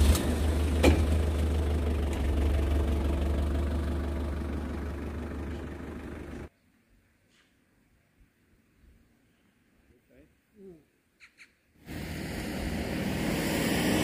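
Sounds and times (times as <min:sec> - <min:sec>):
pickup truck engine running: 0:00.0 - 0:06.5.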